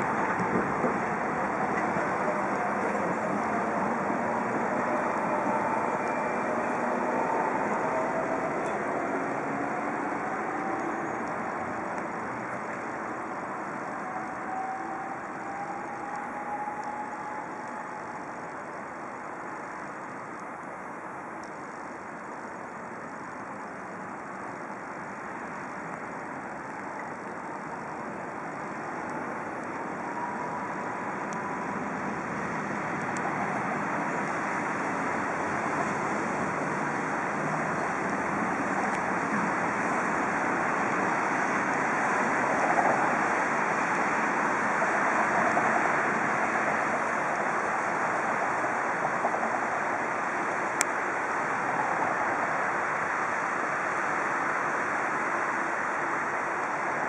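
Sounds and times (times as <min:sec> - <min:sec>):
wind noise on microphone: 0:00.0 - 0:18.9.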